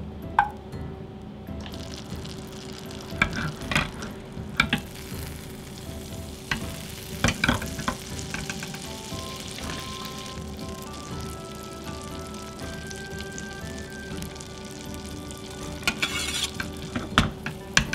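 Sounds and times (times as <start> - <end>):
butter sizzling in pan: 1.6 - 17.9.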